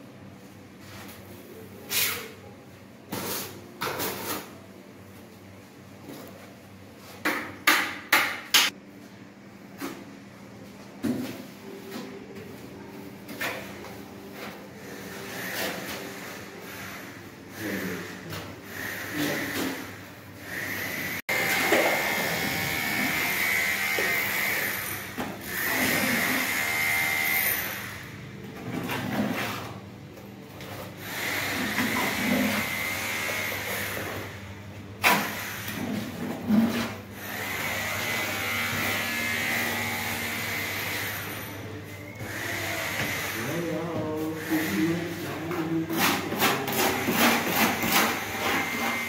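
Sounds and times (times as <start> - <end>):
trowel scraping tile adhesive: 45.9 - 49.0.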